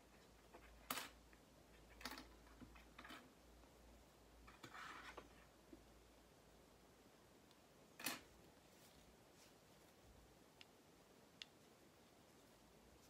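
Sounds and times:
soft rustle: 0:04.4 - 0:05.9, 0:07.4 - 0:13.0
faint sharp clicks: 0:10.5 - 0:11.6.

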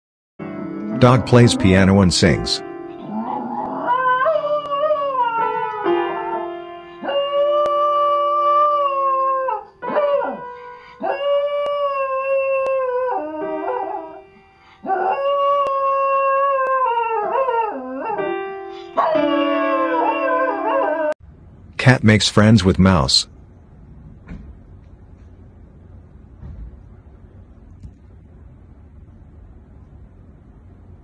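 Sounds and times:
piano notes: 0:00.4 - 0:21.1
dog howling: 0:03.0 - 0:10.4, 0:14.8 - 0:18.4, 0:19.0 - 0:21.2.

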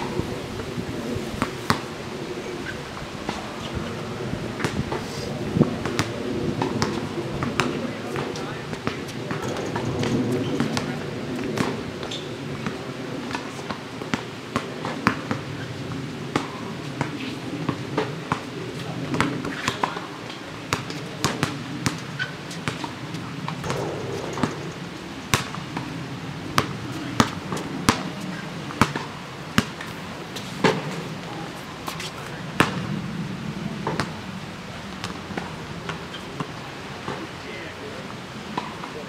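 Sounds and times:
basketball bouncing on asphalt: 0:05.8 - 0:18.4, 0:19.1 - 0:20.1, 0:20.7 - 0:30.0, 0:32.5 - 0:32.9, 0:35.0 - 0:36.0.

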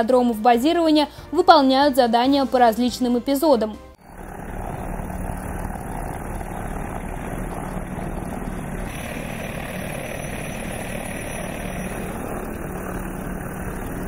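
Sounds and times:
helicopter rotor and turbine noise: 0:04.0 - 0:14.0
steady low hum: 0:04.0 - 0:14.0.

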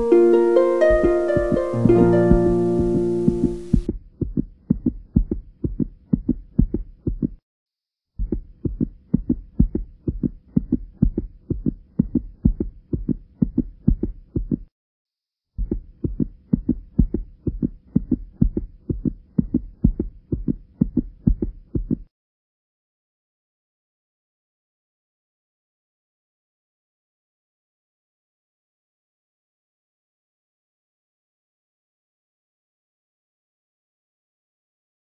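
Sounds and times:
faint hum: 0:00.0 - 0:03.9
bass-heavy pulsing beat: 0:00.8 - 0:05.8.

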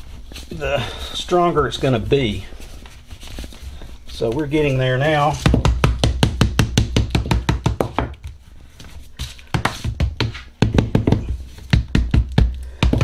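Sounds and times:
mallet tapping on cardboard: 0:05.4 - 0:08.2, 0:09.6 - 0:13.0.

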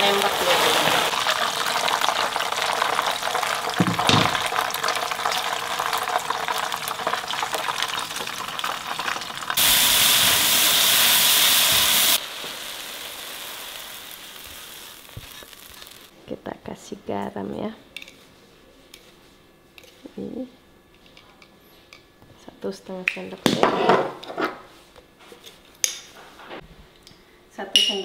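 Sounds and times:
hot oil sizzling: 0:00.0 - 0:16.1.

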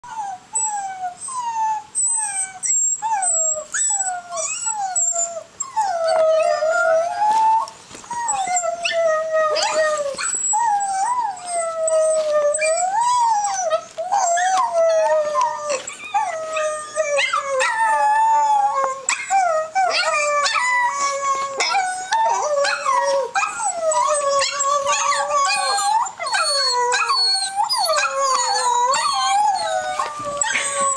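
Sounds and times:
dog whining and howling: 0:00.0 - 0:30.9.

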